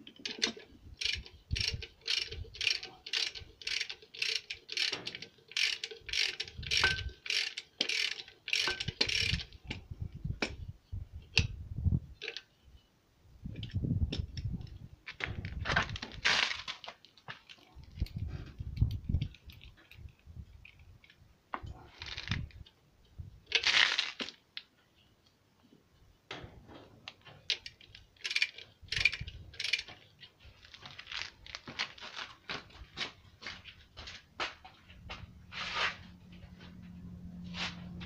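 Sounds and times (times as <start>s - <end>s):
ratchet wrench clicking: 0.2s - 9.8s, 27.5s - 30.0s.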